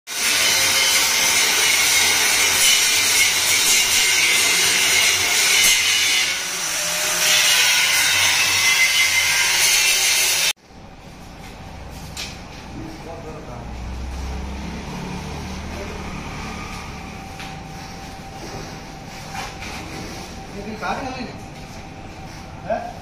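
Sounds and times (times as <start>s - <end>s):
angle grinder grinding steel: 0.1s - 10.6s.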